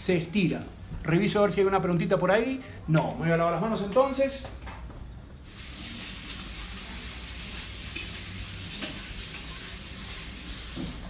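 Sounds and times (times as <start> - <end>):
tap water running into sink: 5.5 - 11.0.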